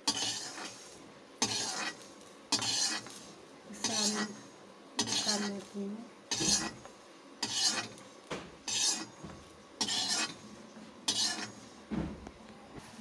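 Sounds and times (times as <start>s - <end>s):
metal ladle scraping in a pan: 0.0s - 5.7s, 6.3s - 6.8s, 7.4s - 9.2s, 9.8s - 11.8s.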